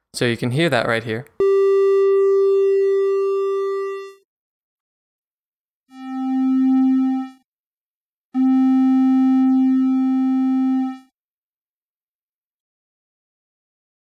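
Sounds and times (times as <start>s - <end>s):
synthesizer tones: 1.4s - 4.2s, 5.9s - 7.4s, 8.4s - 11.1s.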